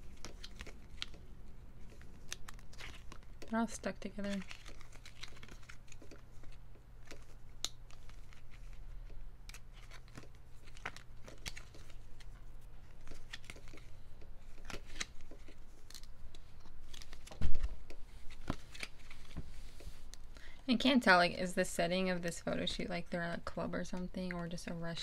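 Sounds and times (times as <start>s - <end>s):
photocards clicking and rustling: 0.0s - 19.4s.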